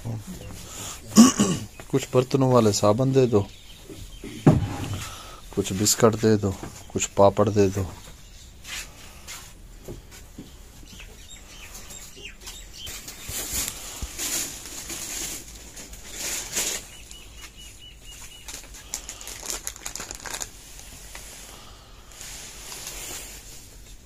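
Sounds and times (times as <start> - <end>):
plastic packaging rustling: 12.8 - 24.0.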